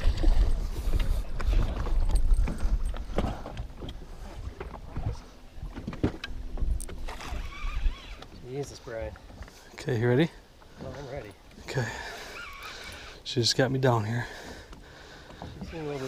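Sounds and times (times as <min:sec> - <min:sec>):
water splashing against boat: 0:00.0 - 0:09.7.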